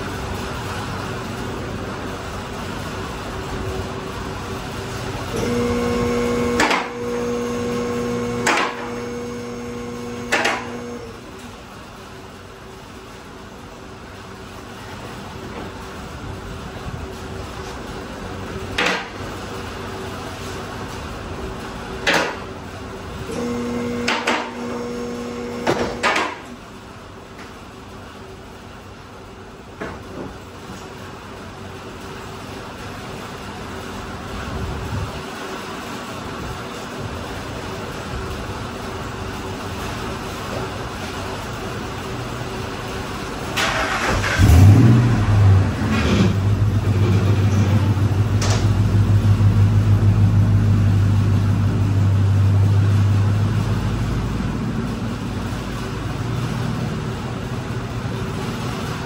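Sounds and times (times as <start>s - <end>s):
hydraulic power unit humming: 0.0s - 30.5s, 36.2s - 59.0s
hydraulic pump motor humming: 5.3s - 11.2s, 23.3s - 26.1s.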